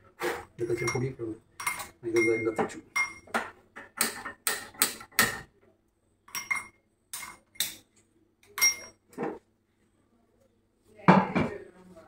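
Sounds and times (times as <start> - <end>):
metal cookware clinking: 0.6 - 5.5, 6.2 - 7.8, 8.4 - 9.4.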